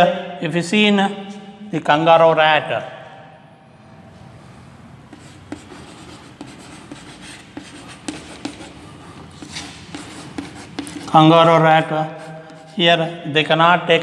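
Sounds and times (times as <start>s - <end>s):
chalk tapping on board: 5.1s - 12.9s
chalk scratching on chalkboard: 5.1s - 13.1s.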